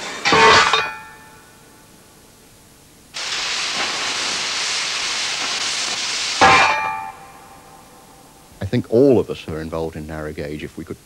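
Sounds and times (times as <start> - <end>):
loud metallic clang: 0.0 - 1.5, 6.4 - 8.0
steam hissing: 3.1 - 8.5.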